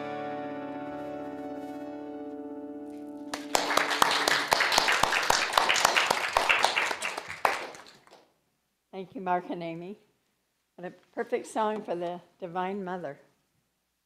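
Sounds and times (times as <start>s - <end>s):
acoustic guitar chord ringing: 0.0s - 3.8s
applause: 3.3s - 8.3s.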